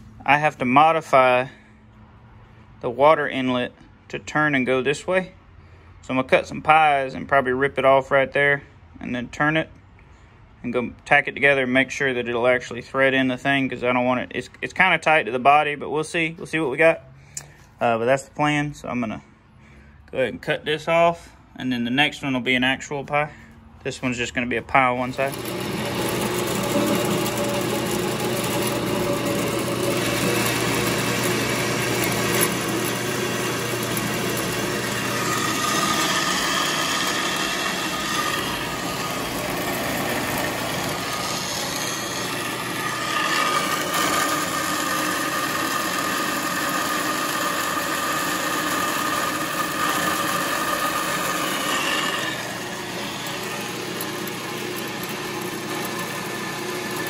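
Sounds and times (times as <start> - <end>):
bandsaw cutting metal: 25.0 - 57.0.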